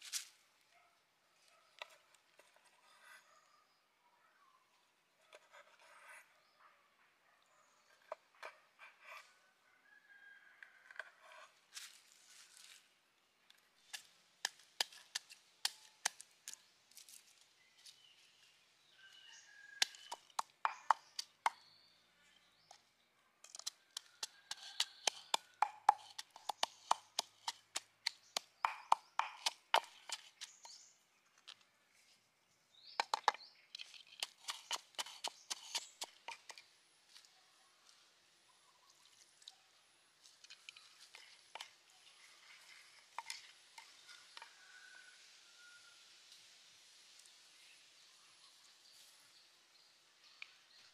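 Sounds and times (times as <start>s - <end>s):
knife cutting on wooden board: 23.5s - 30.5s, 33.8s - 36.6s
pestle pounding in wooden mortar: 23.6s - 30.5s, 33.0s - 36.6s.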